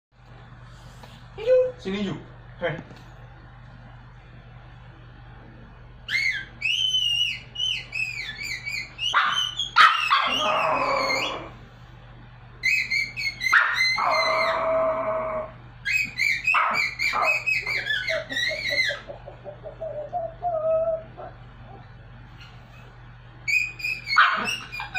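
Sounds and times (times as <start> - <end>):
dog yipping: 6.1 - 11.5, 12.6 - 14.7, 15.8 - 19.2, 23.5 - 24.9
dog howling and yelping: 6.1 - 11.6, 12.6 - 19.1, 19.8 - 21.4, 23.5 - 24.9.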